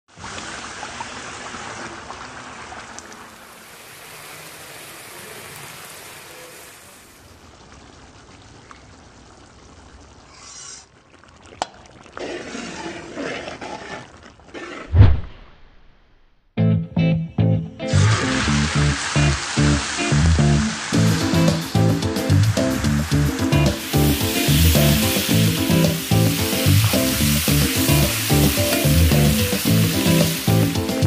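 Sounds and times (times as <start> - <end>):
curry bubbling: 6.5 - 15.1, 22.2 - 31.0.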